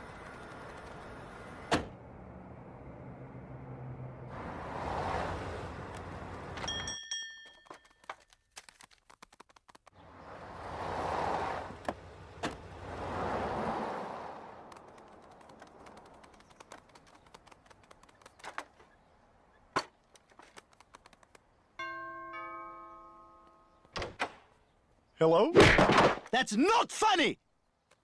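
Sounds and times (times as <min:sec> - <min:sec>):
car driving past: 0:02.1 - 0:06.5, 0:10.0 - 0:15.8.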